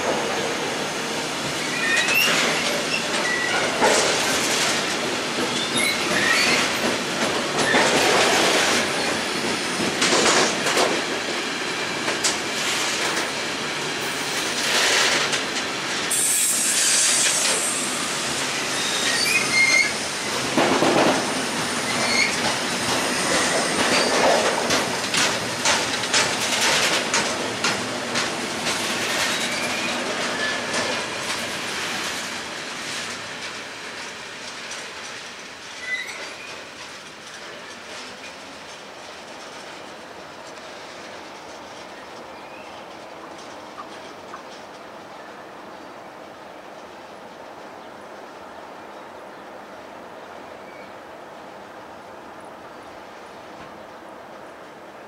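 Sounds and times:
freight train wheels rumbling: 0.0 - 55.0
train wheel squeals: 1.6 - 4.2, 5.4 - 9.5, 16.1 - 20.3, 20.9 - 24.8, 28.9 - 31.0, 35.7 - 36.8
high hiss: 16.0 - 20.3.

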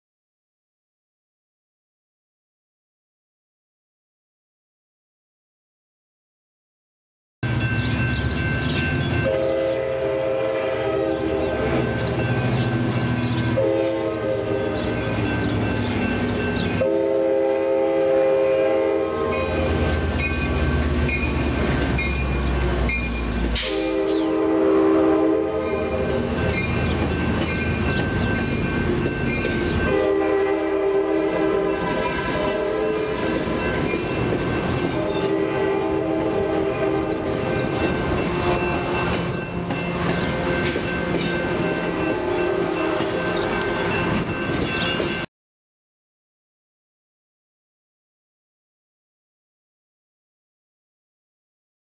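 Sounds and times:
train rumbling on rails: 7.4 - 45.3
train horn blasts: 9.2 - 12.0, 13.5 - 15.3, 16.8 - 20.2, 23.5 - 26.6, 29.8 - 44.2.

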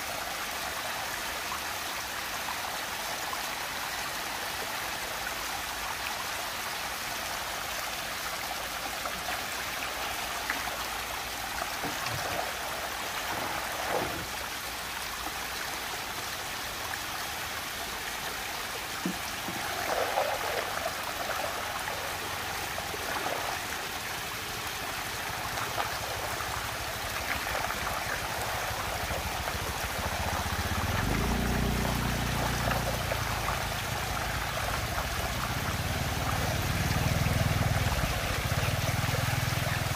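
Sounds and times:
water rushing down a vortex: 6.6 - 39.9.

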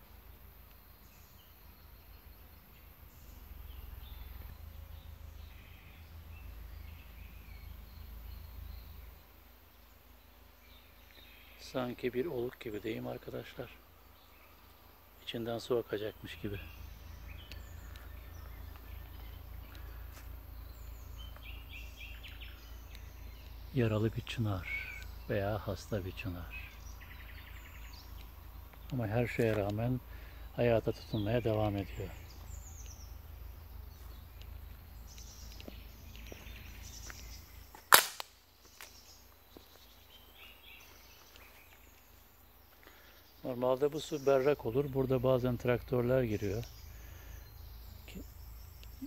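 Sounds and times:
faint birdsong chirps: 0.0 - 49.0
steady low rumble: 16.1 - 39.1
faint ticks: 17.4 - 20.4, 22.2 - 23.6, 27.9 - 29.8, 34.3 - 36.4
sharp crack: 37.8 - 39.0.

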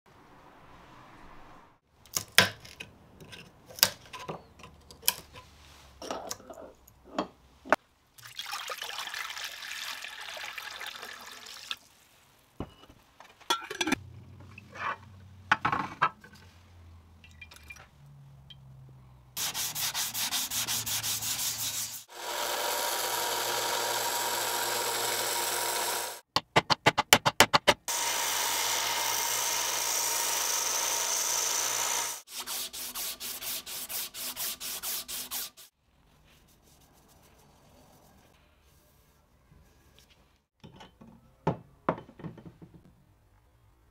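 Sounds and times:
sanding: 19.4 - 26.2, 27.9 - 35.7.

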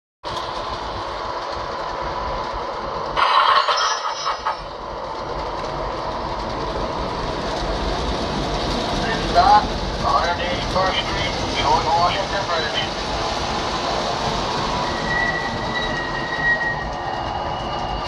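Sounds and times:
train onboard sound effects: 0.2 - 18.0
model train wheels rumbling: 0.3 - 18.0
high-pitched burst: 3.2 - 4.7.

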